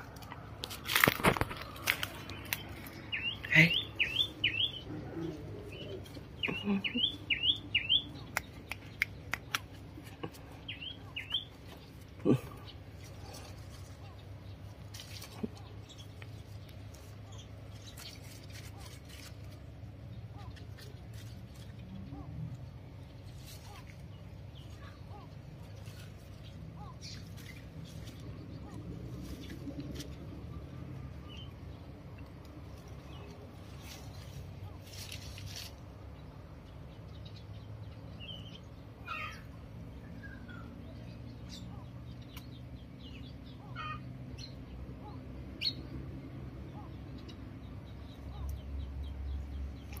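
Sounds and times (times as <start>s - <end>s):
birds chirping: 0.0s - 50.0s.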